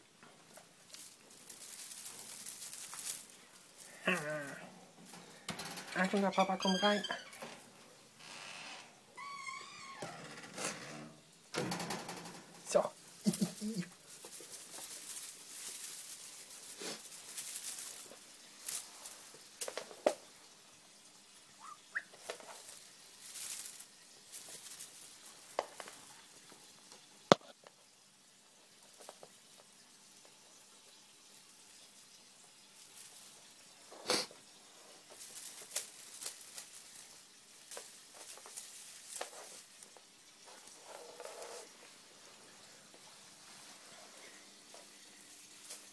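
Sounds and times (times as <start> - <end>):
kittens rustling: 0.0 - 9.9, 11.4 - 21.0, 21.6 - 27.7, 28.4 - 45.9
kitten paws tapping and clicking: 0.6 - 3.9.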